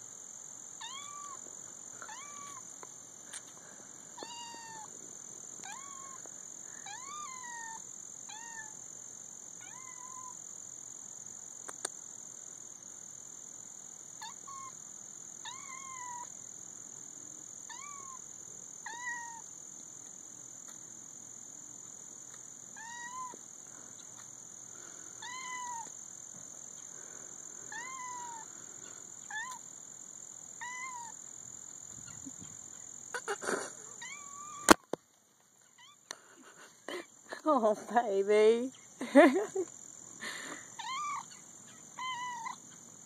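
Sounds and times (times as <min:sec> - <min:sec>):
kitten meowing: 0:00.8 - 0:01.4, 0:04.2 - 0:04.9, 0:05.6 - 0:06.2, 0:06.9 - 0:08.7, 0:09.6 - 0:10.3, 0:18.9 - 0:19.4, 0:22.8 - 0:23.4, 0:25.2 - 0:25.9, 0:27.7 - 0:28.4, 0:29.3 - 0:29.6, 0:34.0 - 0:34.8, 0:40.8 - 0:41.4, 0:42.0 - 0:42.6.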